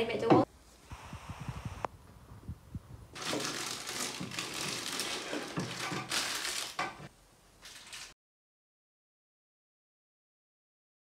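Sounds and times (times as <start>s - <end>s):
plastic wrapping crinkling: 3.2s - 8.2s.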